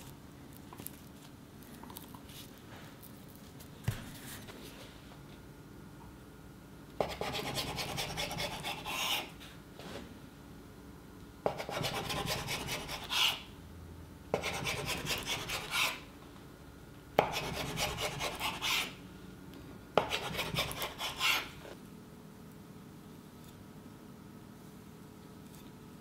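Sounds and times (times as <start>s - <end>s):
knife sawing through dough: 7.0s - 9.3s, 11.5s - 13.4s, 14.4s - 16.0s, 17.2s - 19.0s, 20.0s - 21.6s.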